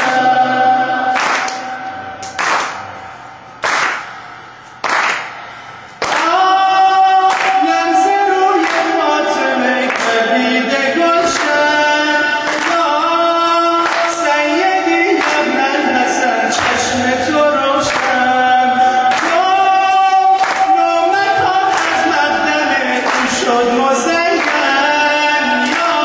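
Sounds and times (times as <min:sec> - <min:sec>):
hand claps: 0:01.1 - 0:02.9, 0:03.6 - 0:05.4, 0:06.0 - 0:06.4, 0:07.2 - 0:09.1, 0:09.8 - 0:11.7, 0:12.4 - 0:14.4, 0:15.1 - 0:15.7, 0:16.6 - 0:16.9, 0:17.8 - 0:18.3, 0:19.1 - 0:23.6, 0:24.2 - 0:24.9, 0:25.6 - 0:26.0
man singing into microphone: 0:06.0 - 0:26.0.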